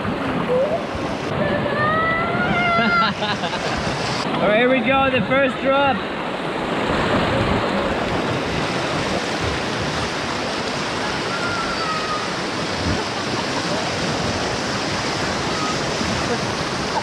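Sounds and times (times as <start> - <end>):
whitewater rushing: 0.0 - 17.0.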